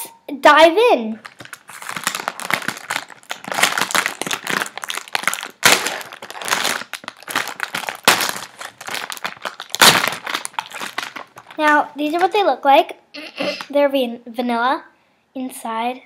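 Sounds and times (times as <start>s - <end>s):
cookie packet crinkling: 1.2s - 12.4s.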